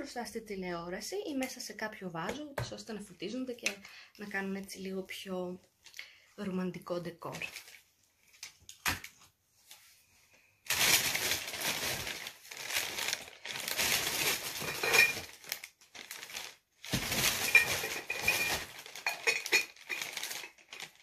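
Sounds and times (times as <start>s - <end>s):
plastic bag rustling: 10.6s - 21.0s.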